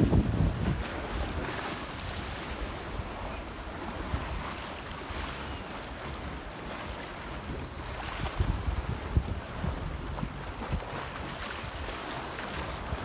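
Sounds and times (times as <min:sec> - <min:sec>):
sea waves sloshing and splashing: 0:00.0 - 0:13.0
wind buffeting microphone: 0:00.0 - 0:13.0.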